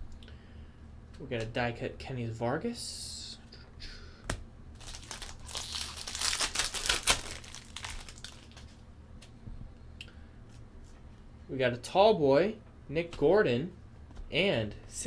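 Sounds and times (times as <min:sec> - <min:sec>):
foil wrapper tearing and crinkling: 0:04.8 - 0:08.8.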